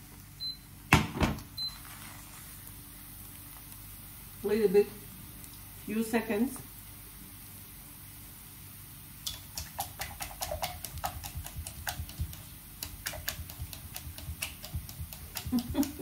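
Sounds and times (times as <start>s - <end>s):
whisk clicking against a bowl: 9.2s - 16.0s.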